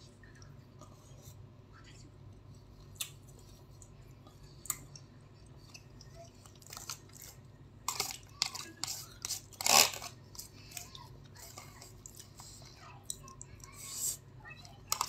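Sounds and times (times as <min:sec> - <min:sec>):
plastic cutlery scraping foil tray: 0:07.9 - 0:10.2.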